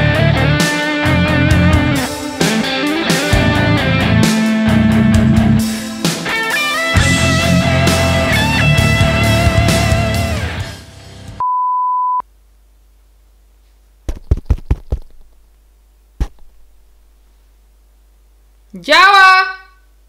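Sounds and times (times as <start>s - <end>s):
rock music with electric guitar: 0.0s - 11.4s
electronic beep: 11.4s - 12.2s.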